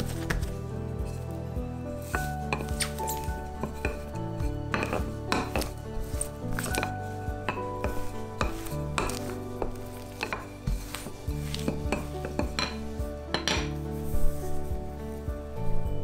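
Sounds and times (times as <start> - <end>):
soft background music: 0.0 - 16.0
rolling pin knocking on countertop: 4.7 - 5.7, 7.5 - 13.7.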